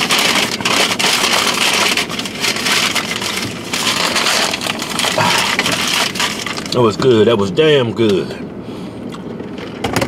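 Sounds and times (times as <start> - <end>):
paper bag crinkling: 0.0 - 6.9.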